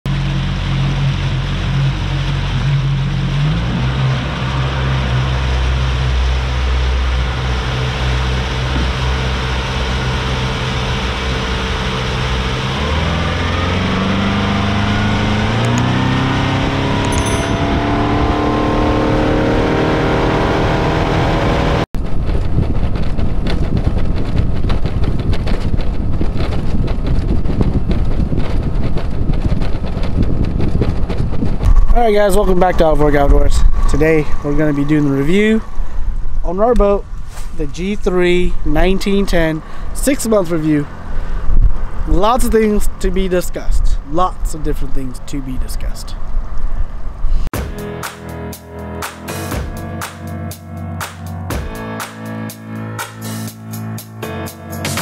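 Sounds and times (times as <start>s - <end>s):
outboard motor running: 0.1s - 20.4s, 22.0s - 37.2s.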